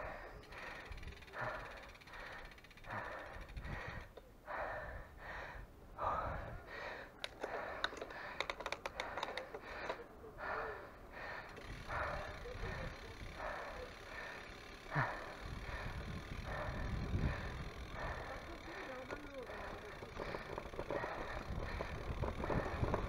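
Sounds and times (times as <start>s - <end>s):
heavy rapid breathing: 0.0s - 23.0s
sharp clicks: 7.2s - 10.1s.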